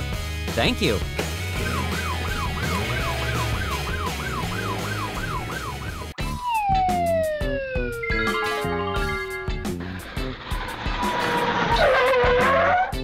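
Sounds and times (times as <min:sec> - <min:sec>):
background music: 0:00.0 - 0:13.0
yelp siren wailing: 0:01.6 - 0:09.6
long downward-sliding tone: 0:01.6 - 0:12.8.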